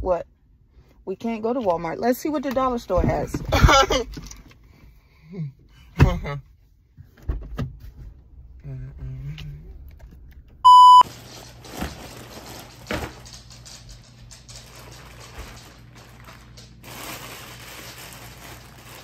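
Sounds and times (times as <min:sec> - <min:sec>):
loud electronic bleep: 0:10.7 - 0:11.0
plastic bag crinkling: 0:11.0 - 0:19.0.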